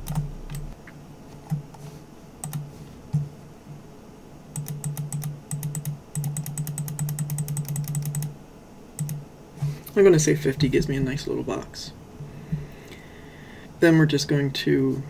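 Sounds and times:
computer mouse clicking: 0:00.0 - 0:00.7, 0:02.4 - 0:03.2, 0:04.6 - 0:08.3, 0:09.0 - 0:09.2.

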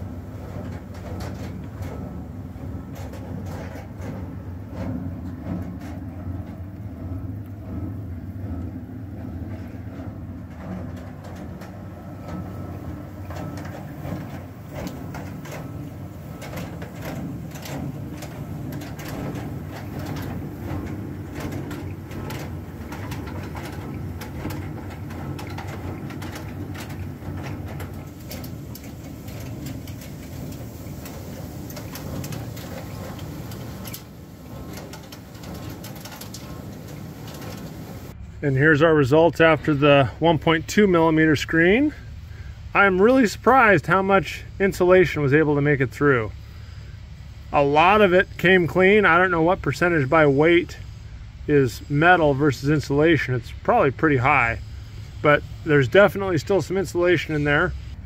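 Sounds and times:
machinery humming: 0:00.0 - 0:58.0
granules rattling onto a screen: 0:10.6 - 0:38.1.

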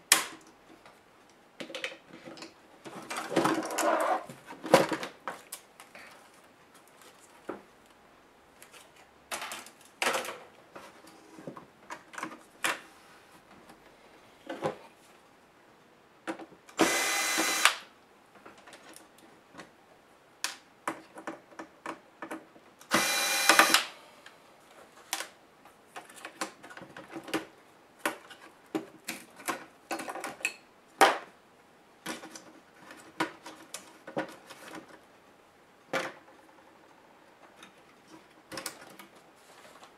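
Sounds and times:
small electric motor whirring: 0:16.8 - 0:17.8, 0:22.9 - 0:23.8.

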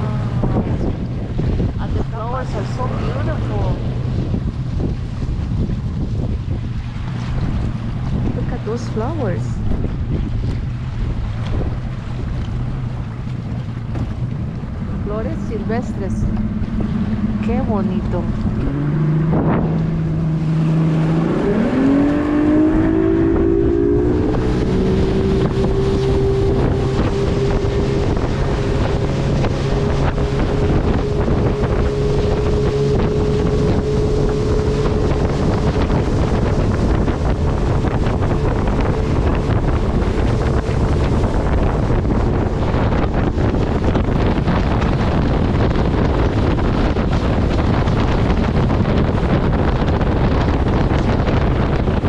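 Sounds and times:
boat motor running: 0:00.0 - 0:52.0
wind buffeting microphone: 0:00.0 - 0:52.0.

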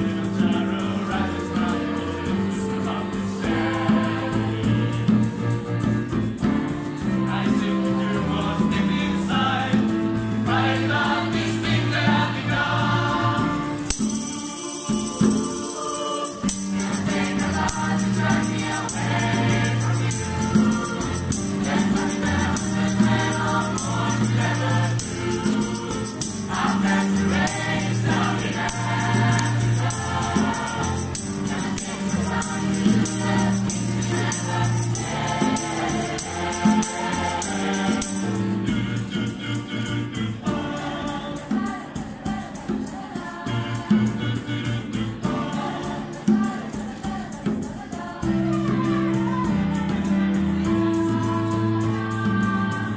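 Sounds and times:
mixed choir singing: 0:00.0 - 0:52.9
tambourine: 0:00.0 - 0:52.9
hand drum beat: 0:13.9 - 0:38.9.

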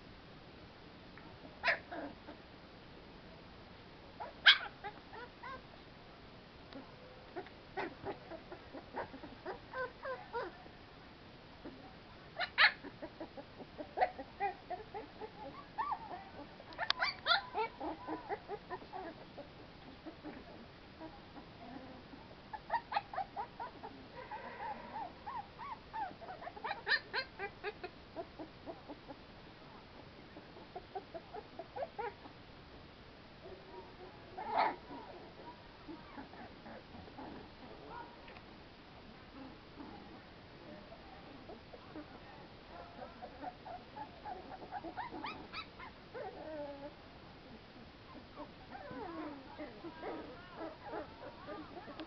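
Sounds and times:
puppies squeaking and whimpering: 0:07.4 - 0:10.5, 0:12.4 - 0:19.2, 0:22.5 - 0:28.5, 0:42.9 - 0:46.9, 0:48.1 - 0:52.0.

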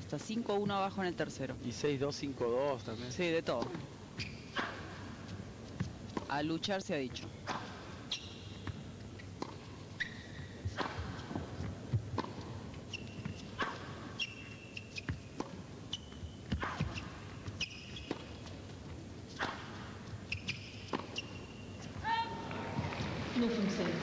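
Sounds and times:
shoes squeaking on court: 0:03.0 - 0:22.1
tennis ball bouncing: 0:03.4 - 0:23.1
racket hitting tennis ball: 0:07.4 - 0:21.4.

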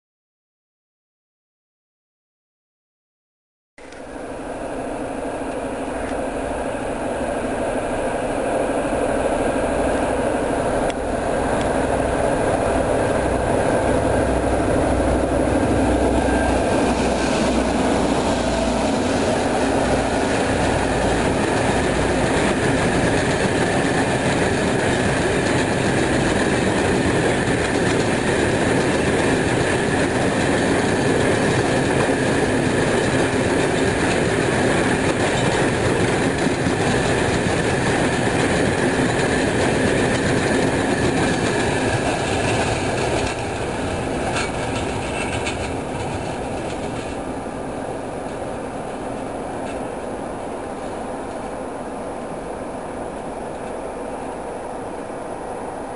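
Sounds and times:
diesel locomotive engine drone: 0:03.8 - 0:55.9
wagon wheels clacking over rails: 0:20.0 - 0:47.3.

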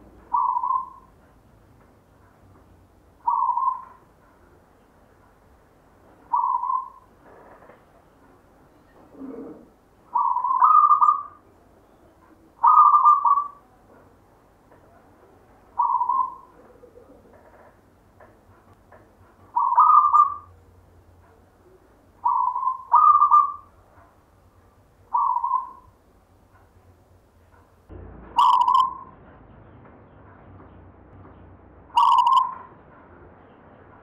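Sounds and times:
dove cooing: 0:00.2 - 0:01.1, 0:03.2 - 0:04.0, 0:06.3 - 0:07.8, 0:08.9 - 0:11.4, 0:12.6 - 0:13.6, 0:15.8 - 0:17.8, 0:19.5 - 0:20.6, 0:21.6 - 0:23.7, 0:25.1 - 0:25.9, 0:28.4 - 0:29.1, 0:32.0 - 0:32.7.

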